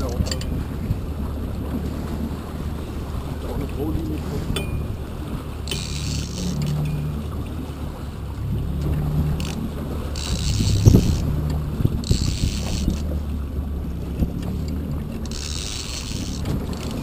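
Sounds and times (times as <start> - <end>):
boat engine running: 0.0 - 17.0
fishing reel cranking: 5.6 - 7.1, 9.4 - 13.2, 15.2 - 17.0.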